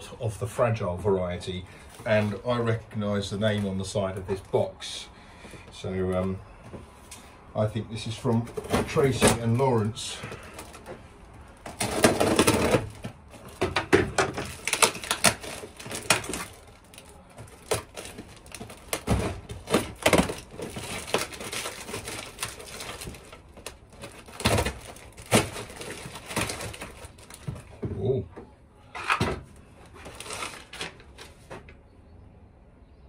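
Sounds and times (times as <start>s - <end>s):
paper packing rustling: 8.1s - 27.8s, 29.8s - 31.7s
packing tape tearing: 11.6s - 27.5s, 30.0s - 31.3s.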